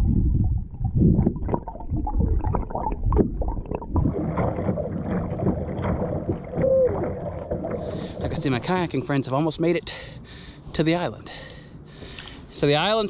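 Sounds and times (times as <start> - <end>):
muffled underwater gurgling: 0.0 - 9.5
water splashing: 0.0 - 9.8
kayak paddling: 4.0 - 9.6.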